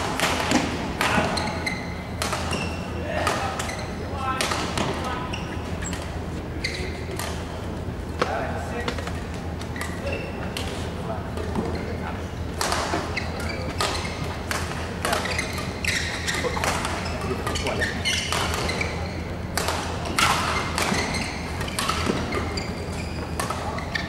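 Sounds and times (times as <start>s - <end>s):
rackets hitting shuttlecock: 0.0s - 3.7s, 12.6s - 24.0s.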